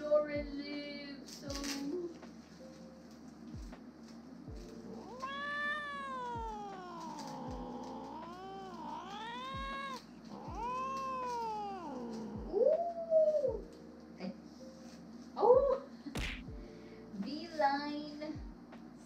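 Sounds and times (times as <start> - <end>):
cat meowing: 4.9 - 13.6.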